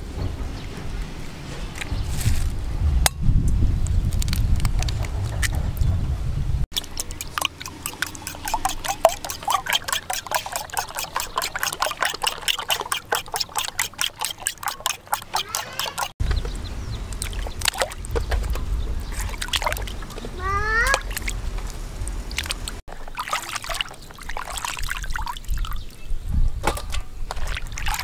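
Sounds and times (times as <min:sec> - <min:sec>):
fork beating eggs in glass bowl: 0:06.7 - 0:16.2
water sloshing in plastic basin: 0:06.8 - 0:16.1, 0:17.1 - 0:20.4, 0:21.0 - 0:26.0, 0:26.6 - 0:28.0.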